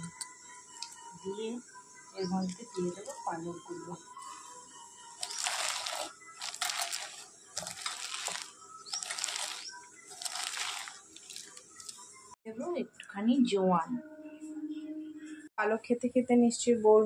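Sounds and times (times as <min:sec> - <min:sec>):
leaves rustling in a bowl: 0:05.2 - 0:12.1.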